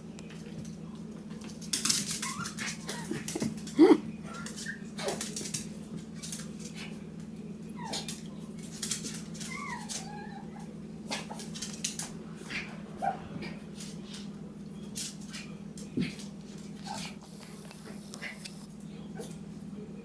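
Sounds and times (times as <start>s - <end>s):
claws clicking on tile floor: 1.4s - 3.8s, 8.0s - 10.2s
puppies whimpering and yipping: 9.3s - 10.7s.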